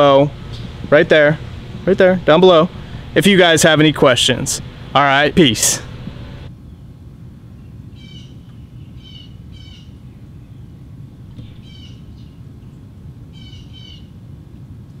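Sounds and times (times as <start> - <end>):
low background rumble: 0.0 - 15.0
bird calling: 7.6 - 14.2.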